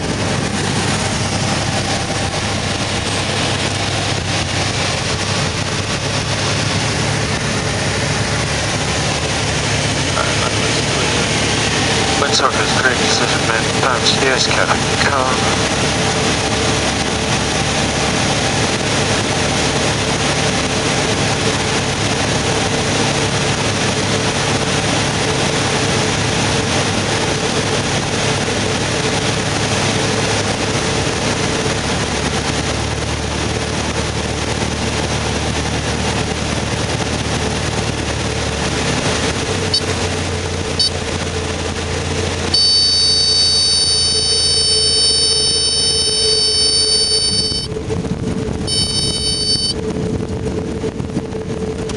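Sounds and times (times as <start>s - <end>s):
airflow: 0.0s - 31.2s
light aircraft engine and propeller: 0.0s - 51.9s
high-pitched buzzing tone: 40.8s - 41.0s, 42.5s - 47.9s, 48.6s - 49.8s.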